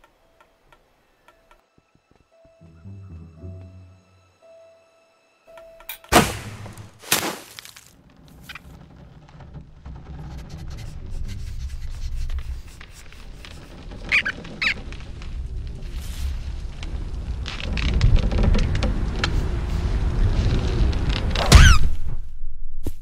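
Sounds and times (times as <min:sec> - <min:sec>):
short squeaks: 0:12.6 - 0:15.2
low rumble: 0:14.8 - 0:22.9.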